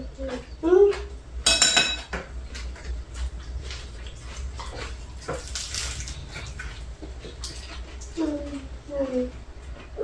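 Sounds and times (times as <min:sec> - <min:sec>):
lettuce and pancakes crackling: 0:02.2 - 0:10.0.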